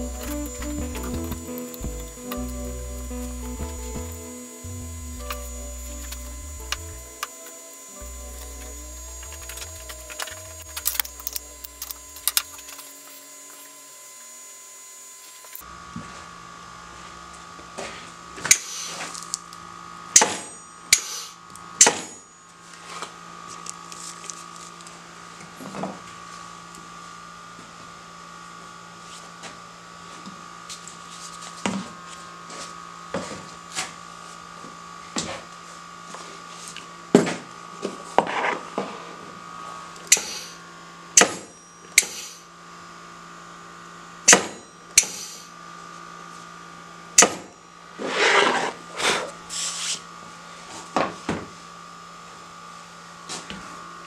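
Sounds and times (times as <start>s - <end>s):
steady hum: 0.0s - 15.6s.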